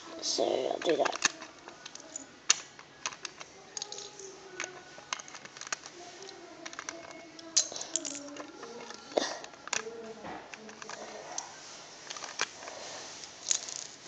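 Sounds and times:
plastic bricks clicking: 0:00.7 - 0:05.9, 0:06.6 - 0:09.9, 0:10.5 - 0:11.2, 0:12.0 - 0:12.6, 0:13.2 - 0:14.0.

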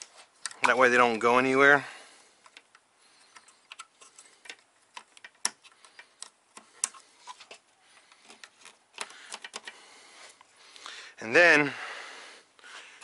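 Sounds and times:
light clicks and taps of parts: 0:02.4 - 0:10.5.

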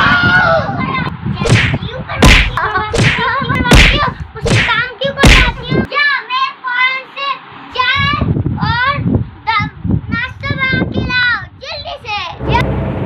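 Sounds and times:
thumps of blows landing: 0:01.4 - 0:05.9.

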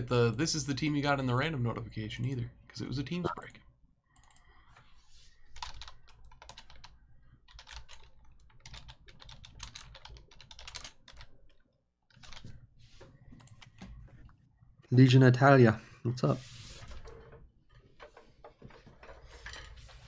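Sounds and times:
typing on computer keyboard: 0:05.6 - 0:12.6.

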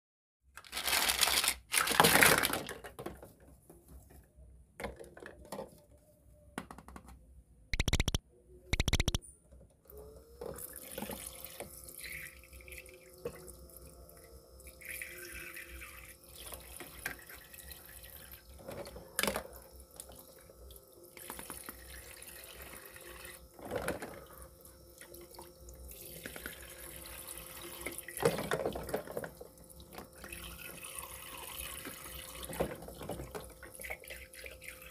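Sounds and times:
plastic toy dishes clattering: 0:00.7 - 0:03.4
toy pump faucet humming: 0:07.8 - 0:08.2, 0:08.8 - 0:09.2, 0:09.9 - 0:34.9.

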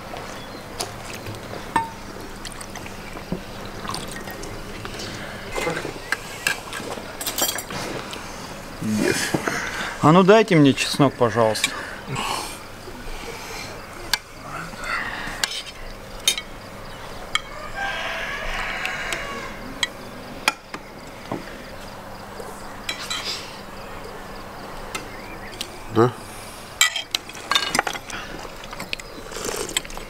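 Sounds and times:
low voices talking: 0:01.6 - 0:16.1, 0:21.1 - 0:26.7
metal spoons clinking on bowls: 0:07.2 - 0:07.7, 0:15.4 - 0:16.5, 0:26.8 - 0:28.0.

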